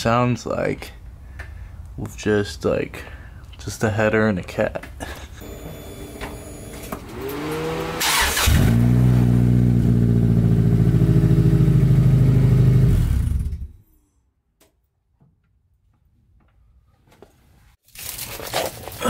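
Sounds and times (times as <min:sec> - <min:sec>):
open-piped car engine running: 0:05.4 - 0:13.8.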